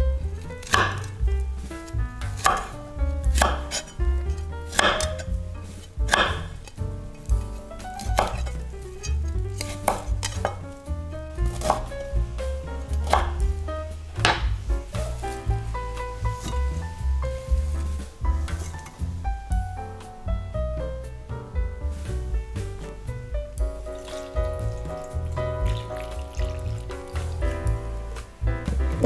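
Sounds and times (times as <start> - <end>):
background music with bass: 0.0 - 29.0
knife chopping on cutting board: 0.5 - 1.2, 1.9 - 3.9, 4.7 - 5.4, 6.1 - 6.7, 7.3 - 8.6, 9.6 - 10.6, 11.4 - 12.0, 12.9 - 13.5, 14.2 - 15.3, 16.0 - 16.7.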